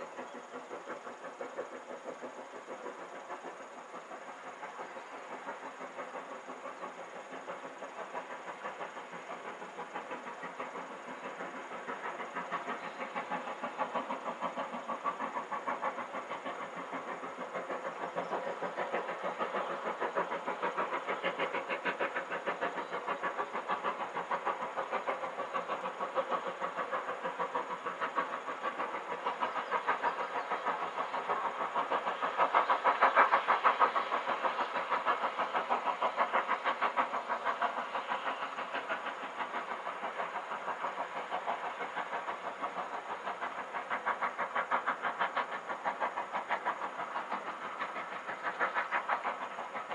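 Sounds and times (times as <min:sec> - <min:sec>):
steam locomotive exhaust beats: 0:00.0 - 0:49.9.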